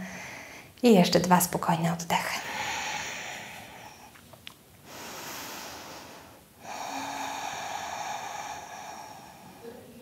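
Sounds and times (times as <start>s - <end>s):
woman breathing deeply: 0.0s - 0.8s, 2.4s - 4.2s, 4.8s - 10.0s.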